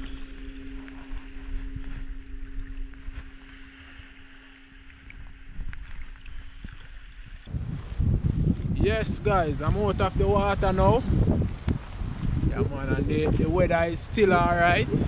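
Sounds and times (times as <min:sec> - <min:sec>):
low hum: 0:00.0 - 0:15.0
sea water lapping and splashing: 0:00.0 - 0:15.0
wind buffeting microphone: 0:05.0 - 0:15.0.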